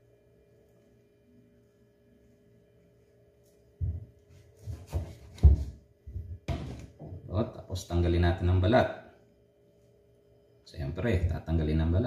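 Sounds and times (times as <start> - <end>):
faint steady hum: 0.0 - 12.0
knife knocking on cutting board: 4.9 - 7.2.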